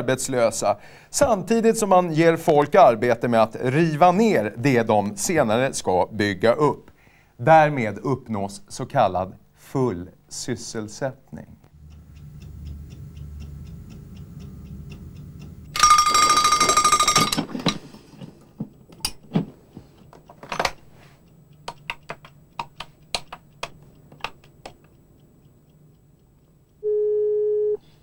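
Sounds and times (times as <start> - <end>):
alarm clock ticking: 11.7 - 17.4
alarm clock bell ringing: 15.7 - 17.4
telephone keys clicking: 21.6 - 25.0
handling clicks: 21.6 - 26.5.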